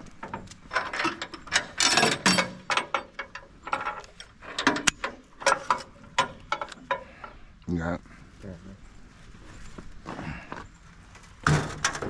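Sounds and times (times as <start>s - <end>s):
steel mesh gate clatter: 0.0s - 7.3s, 11.4s - 12.0s
trailer hardware clicking and clanking: 0.0s - 7.4s, 11.4s - 12.0s.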